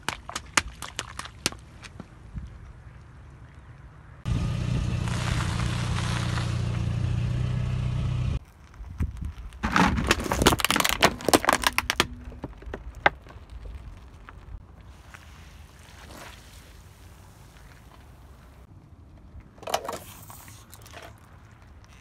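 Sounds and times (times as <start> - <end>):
car engine rumbling: 4.2 - 8.4
plastic cracking under tyre: 5.0 - 6.6, 8.4 - 14.6.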